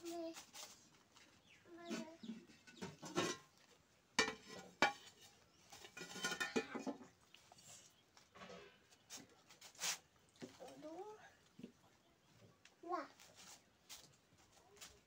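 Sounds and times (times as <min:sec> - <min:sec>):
metal pots clanking: 0:01.9 - 0:03.6, 0:04.2 - 0:07.1
utensils rattling and scraping: 0:01.9 - 0:03.6, 0:04.2 - 0:07.1.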